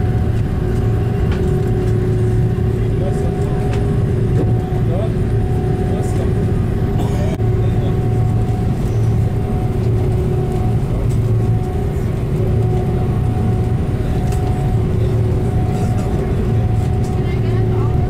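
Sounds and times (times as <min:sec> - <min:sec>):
faint engine whine: 0:00.0 - 0:18.0
jet engines low drone: 0:00.0 - 0:18.0.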